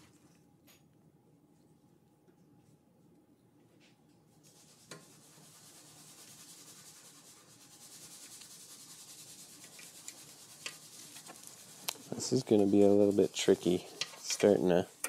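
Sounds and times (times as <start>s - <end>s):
faint rubbing hiss: 4.3s - 15.0s.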